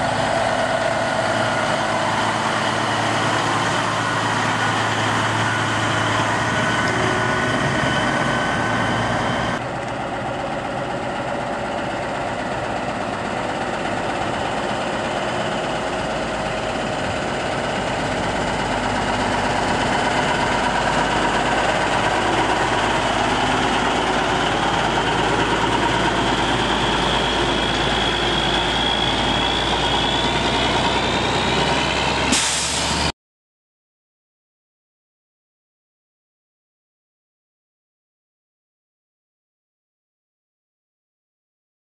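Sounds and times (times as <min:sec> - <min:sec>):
truck engine driving by: 0:00.0 - 0:33.1
air hiss: 0:32.3 - 0:33.0.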